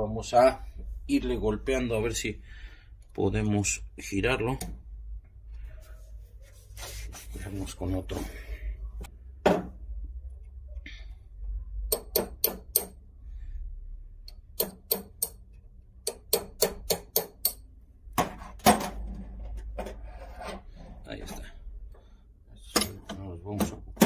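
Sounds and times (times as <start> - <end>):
hammer tapping metal punch: 11.9 - 13.0, 14.3 - 15.4, 16.0 - 17.6.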